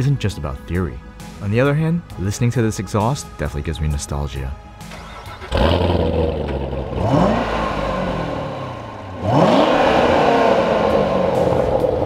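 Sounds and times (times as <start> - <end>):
car engine starting and revving: 4.8 - 12.0.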